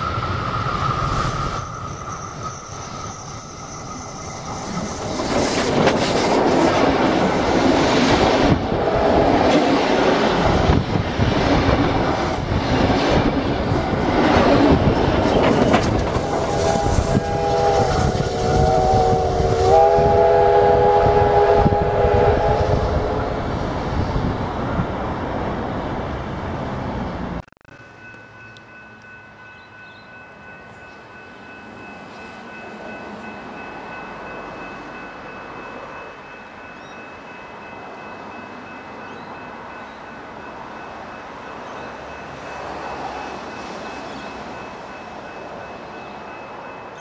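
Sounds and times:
steam locomotive rumble and clatter: 0.0s - 27.4s
steam whistle chord: 16.2s - 23.4s.

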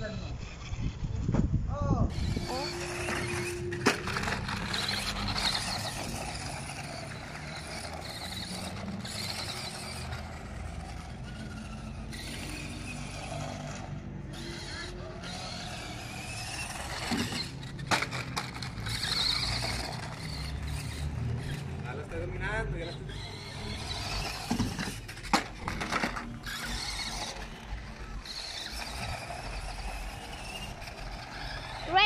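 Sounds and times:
radio-control car driving on asphalt: 0.0s - 32.0s.

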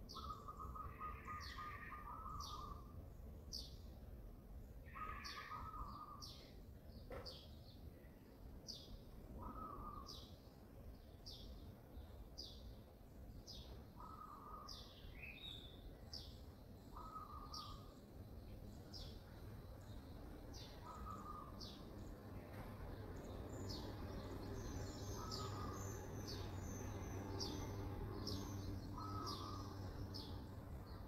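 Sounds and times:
bird chirping high: 23.3s - 31.0s.

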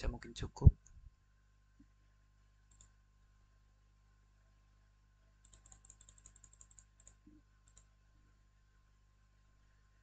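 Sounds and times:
soft computer clicks: 2.7s - 3.0s, 5.4s - 7.9s.

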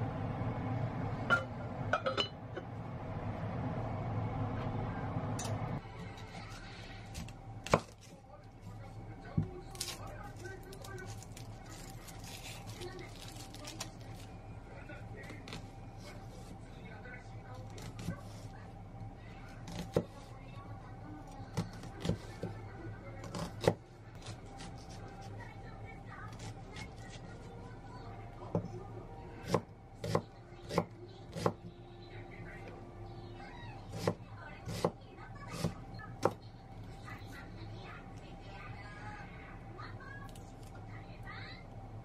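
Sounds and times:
steady low hum: 0.0s - 42.0s
knife cutting onion: 19.6s - 20.2s, 21.5s - 22.5s, 23.2s - 25.2s, 29.4s - 31.6s, 33.9s - 36.4s.

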